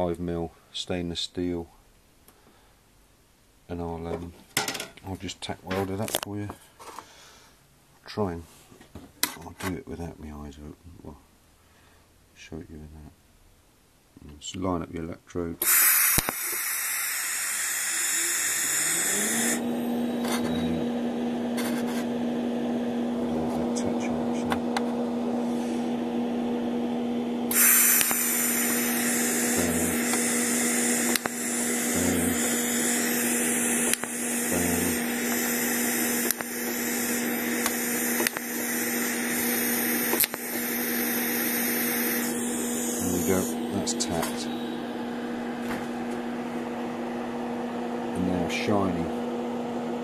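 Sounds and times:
steady hum: 15.4s - 50.0s
steady hiss: 15.5s - 19.6s, 27.5s - 44.5s
welding arc bursts: 15.6s - 19.8s, 27.5s - 44.5s.

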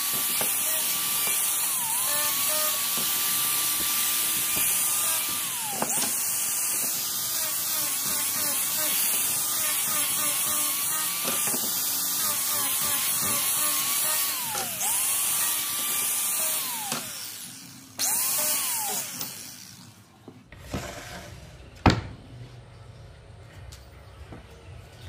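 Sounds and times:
electric power tool whining: 0.0s - 20.0s.

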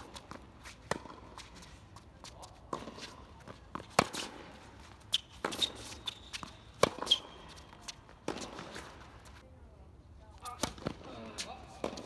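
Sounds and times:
racket hitting tennis ball: 0.0s - 1.6s, 2.2s - 9.3s, 11.8s - 12.0s
shoes squeaking on court: 0.0s - 9.4s.

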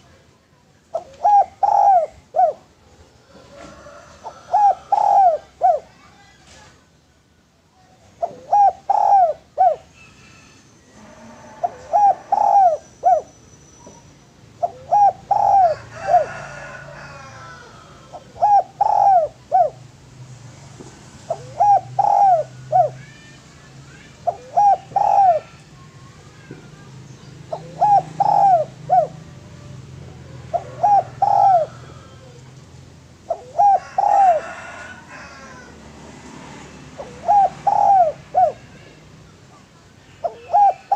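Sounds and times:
dove cooing: 0.9s - 6.0s, 8.2s - 13.4s, 14.6s - 19.9s, 21.3s - 23.1s, 24.1s - 25.9s, 27.4s - 35.8s, 36.8s - 38.9s, 40.1s - 40.9s
faint bird chirps: 9.7s - 15.5s.

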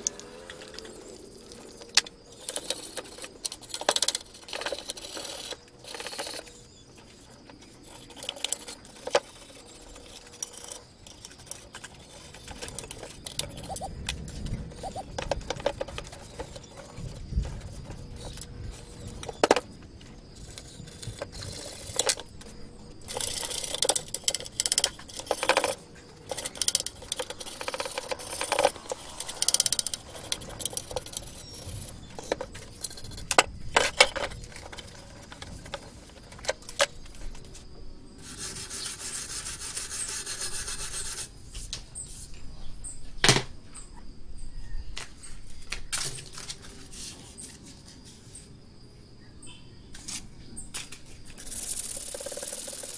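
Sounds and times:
metal scraping on wood: 0.0s - 42.3s.

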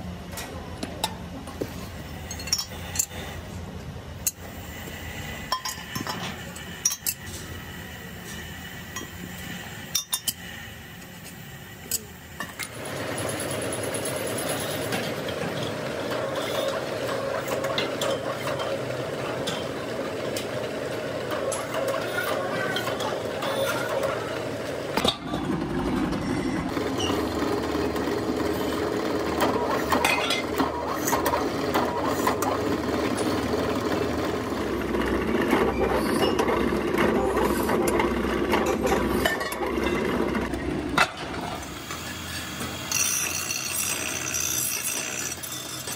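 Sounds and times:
pillar drill cutting metal: 41.6s - 45.9s.

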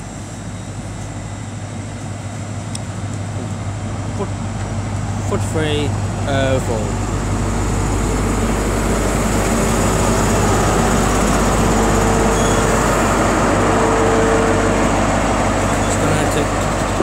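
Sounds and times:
diesel train engine hum: 0.0s - 17.0s.

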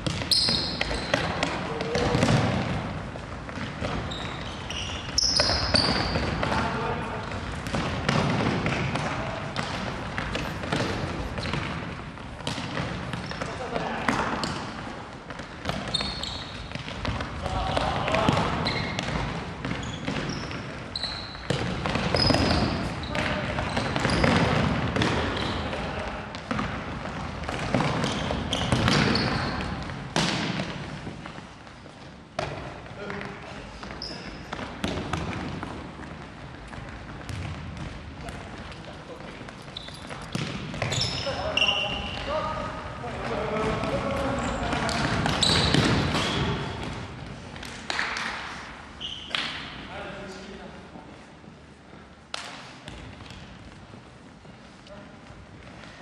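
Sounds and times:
ball being kicked and bouncing: 0.0s - 2.9s, 26.3s - 30.8s, 34.5s - 38.7s, 39.6s - 41.2s
shoes squeaking on court: 0.0s - 47.4s, 48.9s - 49.8s.

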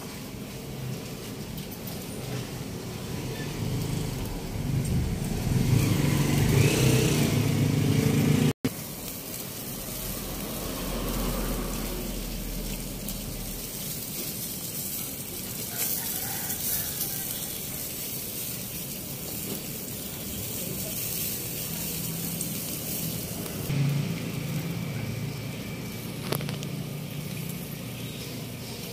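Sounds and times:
fish sizzling on a grill: 0.0s - 28.9s
low rumble: 2.8s - 8.1s.

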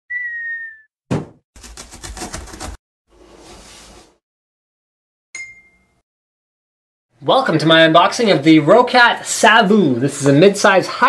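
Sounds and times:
cartoon whistle: 0.1s - 0.9s
cartoon thump: 0.4s - 1.4s.

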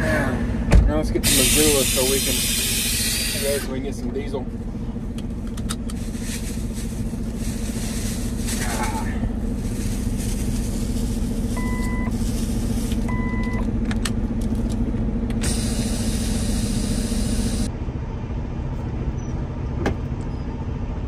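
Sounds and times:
diesel engine droning: 0.0s - 21.0s
air hiss: 1.2s - 3.7s, 15.4s - 17.7s
short electronic beeps: 11.6s - 12.1s, 13.1s - 13.6s.

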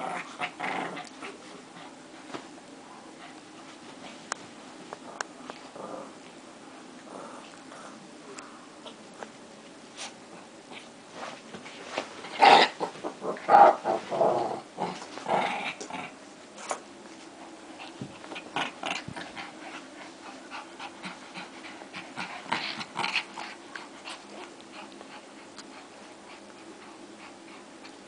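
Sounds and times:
small dogs growling: 0.0s - 2.1s, 4.9s - 9.3s, 12.2s - 16.9s, 17.5s - 28.0s.

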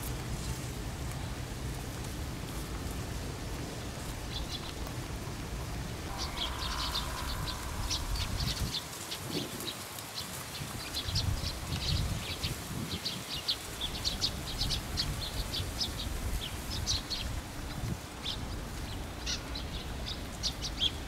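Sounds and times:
outdoor hiss: 0.0s - 21.0s
small birds chirping: 4.0s - 5.0s, 5.8s - 21.0s
low rumble: 6.1s - 9.6s.

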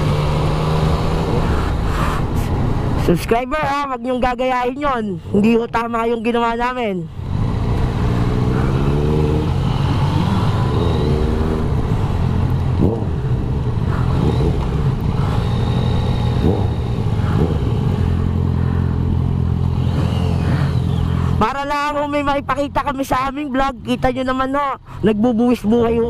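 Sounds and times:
motorcycle engine accelerating: 0.0s - 1.9s, 7.1s - 22.7s
motorcycle throttle blips: 7.6s - 21.4s.

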